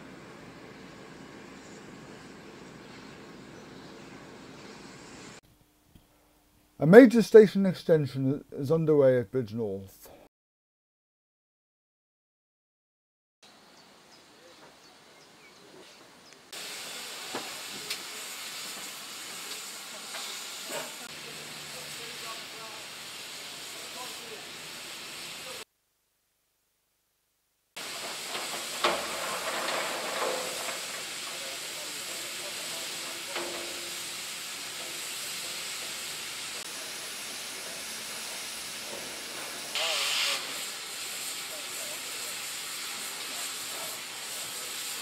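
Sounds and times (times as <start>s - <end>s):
steam hissing: 0.0s - 5.4s, 16.5s - 25.6s, 27.8s - 45.0s.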